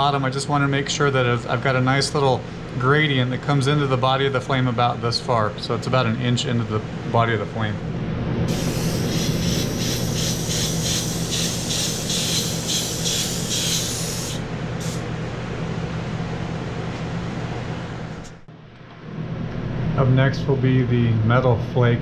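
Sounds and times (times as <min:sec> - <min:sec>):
airbrush hissing in pulses: 0:08.5 - 0:15.1.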